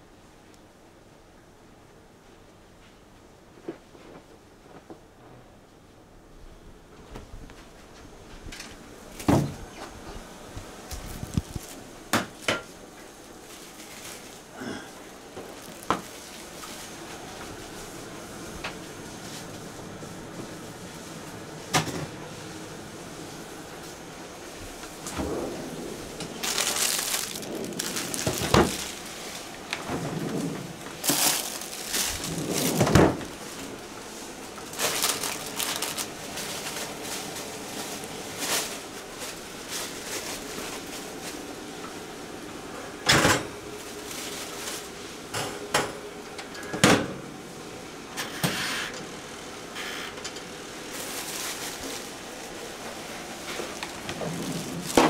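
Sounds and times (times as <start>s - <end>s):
rustling: 9.8s - 18.0s, 23.9s - 41.5s, 43.8s - 45.0s, 50.9s - 55.0s.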